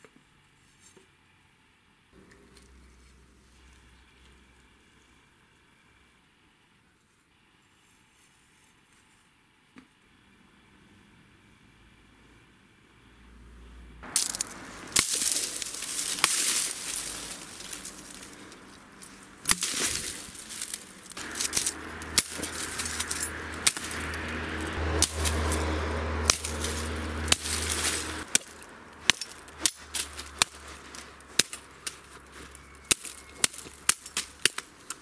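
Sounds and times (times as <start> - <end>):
billhook chopping branches: 14.0 - 35.0
twigs and leaves rustling: 14.0 - 35.0.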